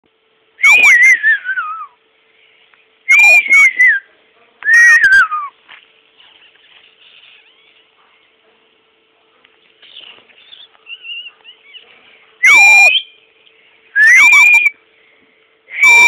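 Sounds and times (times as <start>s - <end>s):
small dog whining: 6.4s - 8.2s, 9.8s - 13.0s.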